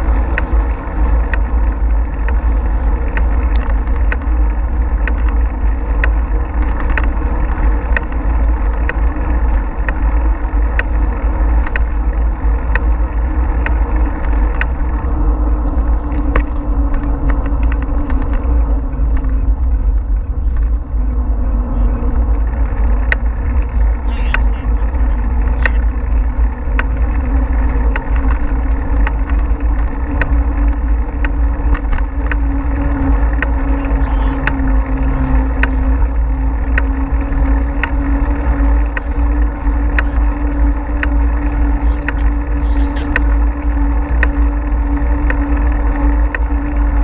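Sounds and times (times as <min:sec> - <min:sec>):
small sharp clicks and rattles: 0:00.0 - 0:20.8
tyre and road noise: 0:00.0 - 0:47.0
wind buffeting microphone: 0:00.0 - 0:47.0.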